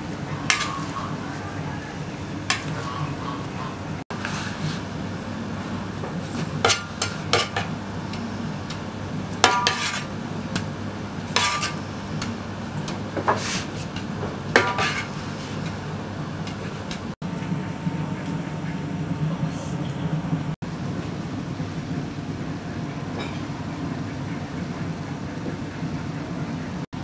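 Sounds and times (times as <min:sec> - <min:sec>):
metal skimmer scraping rice: 0:09.4 - 0:10.1, 0:11.3 - 0:11.8, 0:13.2 - 0:15.7.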